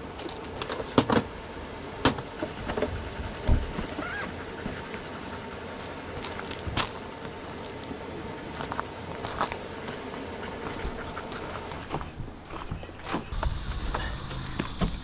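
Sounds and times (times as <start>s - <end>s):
electric fan humming: 0.0s - 15.0s
footsteps crunching on pebbles: 5.8s - 14.8s.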